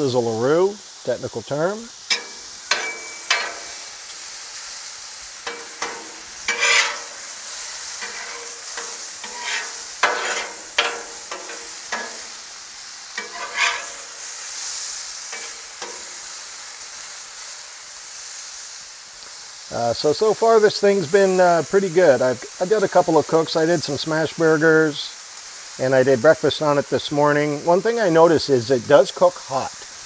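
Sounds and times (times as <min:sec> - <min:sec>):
mushrooms sizzling on a griddle: 0:00.0 - 0:30.0
utensil scraping a griddle: 0:02.1 - 0:04.5, 0:05.4 - 0:16.3.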